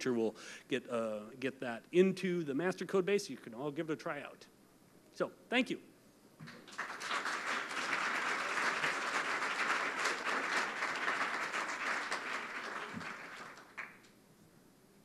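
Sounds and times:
audience applauding: 6.4s - 14.1s.

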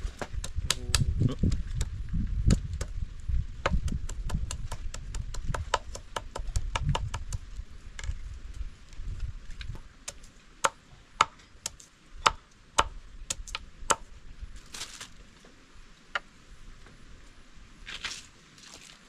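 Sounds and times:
knife chopping on wooden board: 3.6s - 7.4s.

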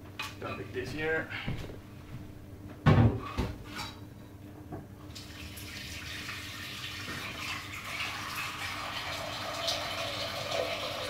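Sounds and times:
water running from tap: 5.1s - 11.0s.

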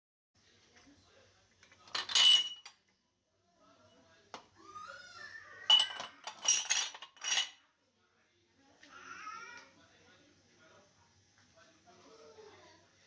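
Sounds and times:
glassware clinking: 1.8s - 2.8s, 5.6s - 7.6s.

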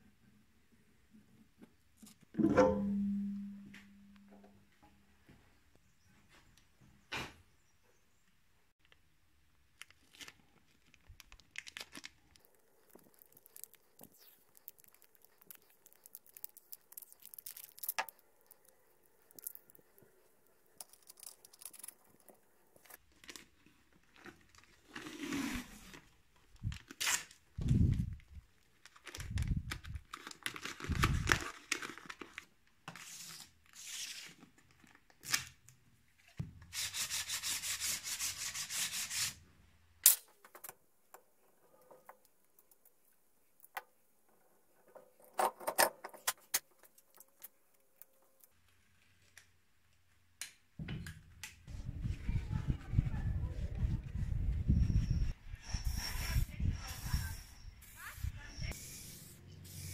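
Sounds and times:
paper crinkling: 9.7s - 27.4s, 28.5s - 35.5s
masking tape handled and torn: 9.8s - 19.9s, 20.8s - 23.4s, 26.6s - 27.5s, 33.0s - 35.8s.

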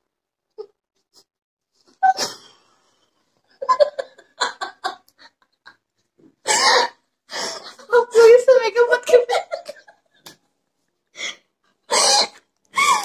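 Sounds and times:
woman laughing: 3.6s - 5.8s, 8.9s - 10.1s.

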